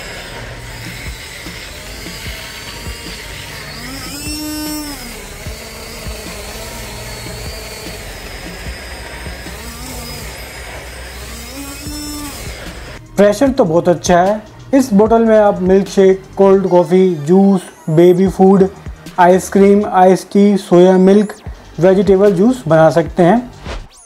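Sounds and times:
blender motor running: 0:00.0 - 0:13.0.

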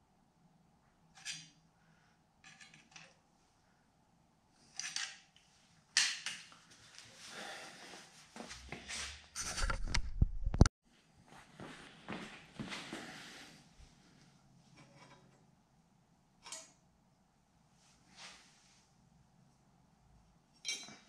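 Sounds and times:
metal tools clinking on concrete: 0:20.6 - 0:21.0.

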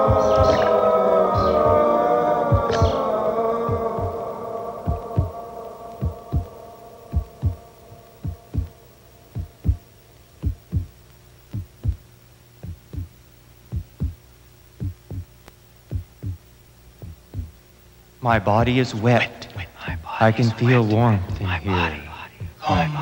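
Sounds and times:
heartbeat thumps: 0:00.0 - 0:00.7, 0:01.4 - 0:01.9, 0:02.5 - 0:03.0, 0:03.7 - 0:04.2, 0:04.8 - 0:06.5, 0:07.1 - 0:14.2, 0:14.8 - 0:17.6, 0:22.4 - 0:22.9
steady low hum: 0:00.0 - 0:23.0.

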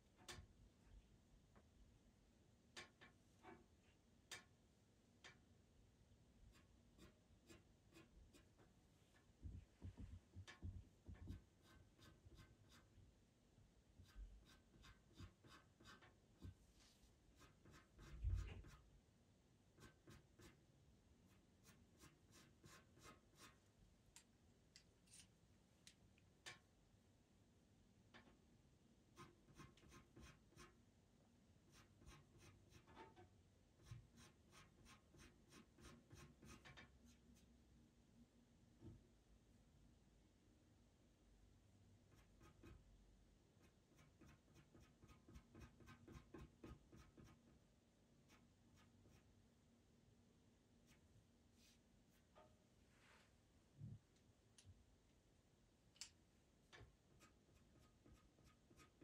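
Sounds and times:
pencil scratching on paper: 0:06.5 - 0:08.7, 0:11.2 - 0:12.9, 0:14.0 - 0:16.6, 0:17.3 - 0:18.9, 0:19.8 - 0:20.6, 0:21.3 - 0:23.6, 0:29.2 - 0:30.8, 0:31.7 - 0:33.2, 0:33.8 - 0:37.5, 0:42.1 - 0:42.9, 0:43.6 - 0:47.5, 0:48.3 - 0:49.3, 0:57.1 - 0:59.0.

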